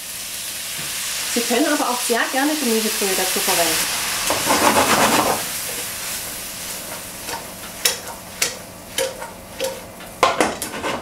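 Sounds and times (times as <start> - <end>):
vegetables sizzling in a frying pan: 0.0 - 10.3.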